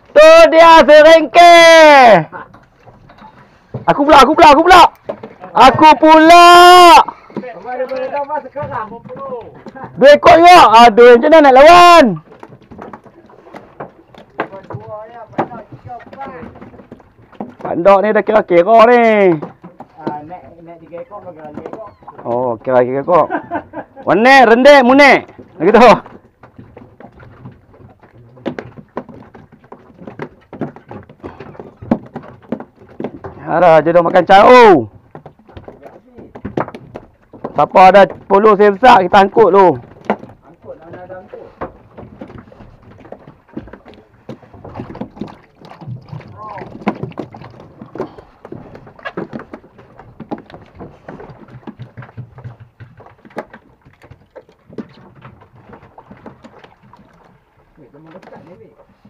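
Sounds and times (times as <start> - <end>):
light taps and knocks: 6.8 - 10.6, 11.2 - 24.2, 24.8 - 59.0.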